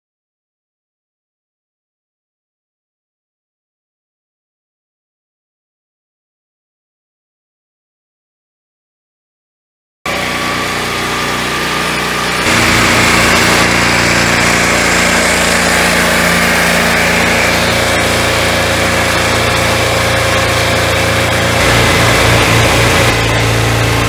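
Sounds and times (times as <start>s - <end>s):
circular saw blade cutting log: 10.1s - 24.0s
sawmill engine running: 10.1s - 24.0s.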